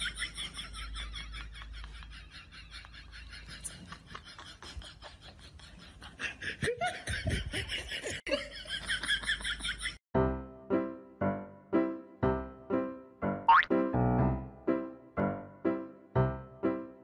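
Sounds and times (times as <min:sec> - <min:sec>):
person laughing loudly: 0:00.0 - 0:10.0
bouncy music: 0:10.2 - 0:17.0.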